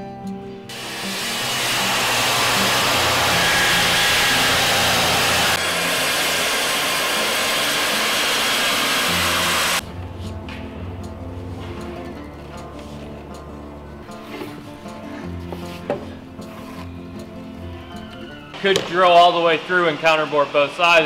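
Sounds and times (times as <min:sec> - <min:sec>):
circular saw cutting wood: 0:00.7 - 0:09.8, 0:18.1 - 0:21.0.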